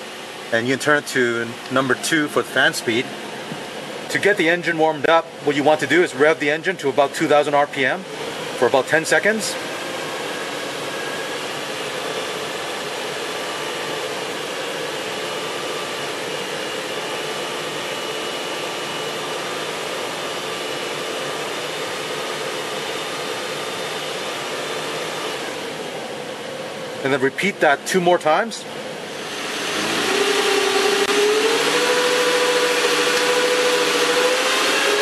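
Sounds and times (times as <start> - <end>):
heater blower fan: 0.0 - 35.0
car engine running: 28.7 - 35.0.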